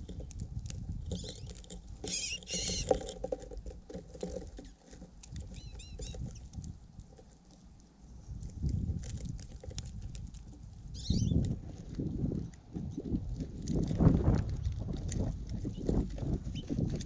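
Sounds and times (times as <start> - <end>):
birds pecking seed: 0.0 - 17.0
birds chirping: 1.1 - 3.0, 5.5 - 6.5, 10.9 - 11.4.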